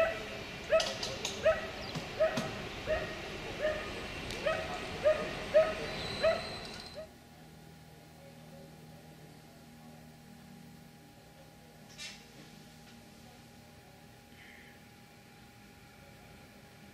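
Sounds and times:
dog barking: 0.0s - 7.1s.

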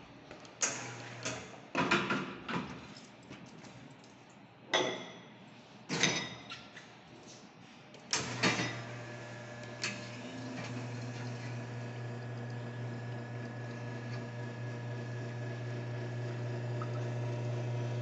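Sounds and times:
espresso machine low hum: 8.2s - 18.0s.

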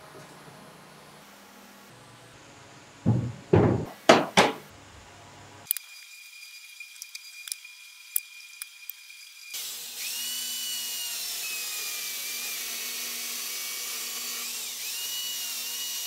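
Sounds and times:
heavy knocks: 3.0s - 4.7s.

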